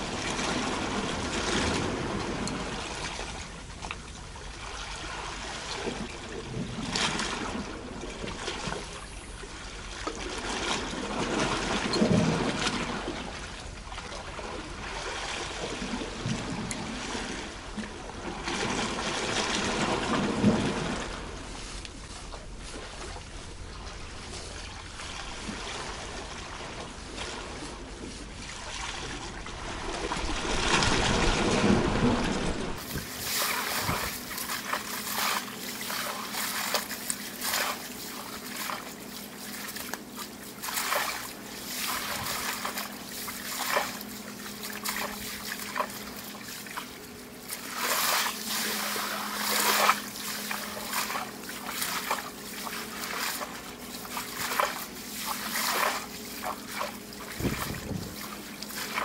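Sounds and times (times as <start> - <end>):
sea water lapping on rocks: 0.0 - 21.8, 25.0 - 59.0
wave surging: 31.0 - 59.0
faint steady drone: 32.8 - 59.0.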